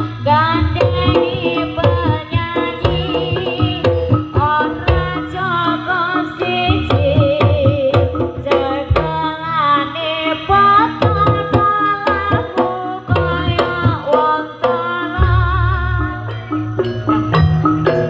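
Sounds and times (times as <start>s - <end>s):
sliding melody line: 0.0s - 9.4s
hand drums beating: 0.0s - 9.7s, 10.3s - 18.0s
metallic gamelan tones: 0.0s - 18.0s.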